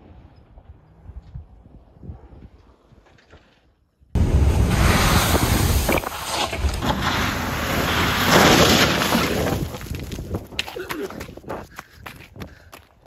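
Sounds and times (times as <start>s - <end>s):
wind buffeting microphone: 9.2s - 13.0s.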